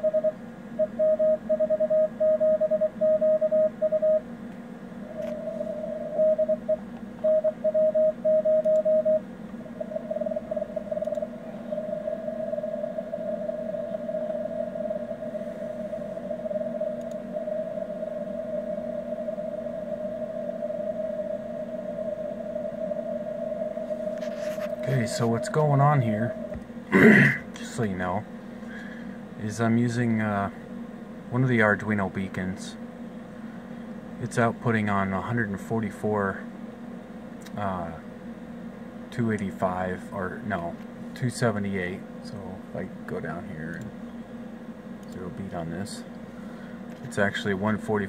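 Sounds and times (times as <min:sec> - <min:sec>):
morse code tone: 0:00.0 - 0:04.2, 0:05.2 - 0:09.2
low receiver hum: 0:00.0 - 0:48.0.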